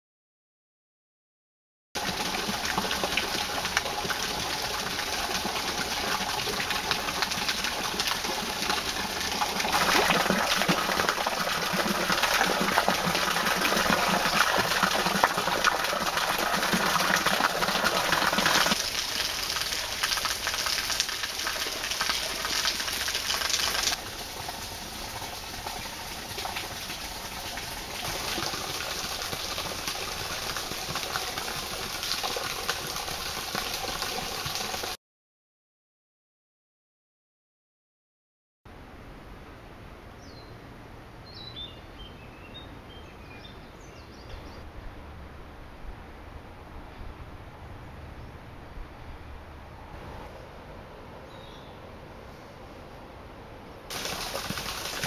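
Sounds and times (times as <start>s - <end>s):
water splashing onto stone: 2.0s - 35.0s, 53.9s - 55.0s.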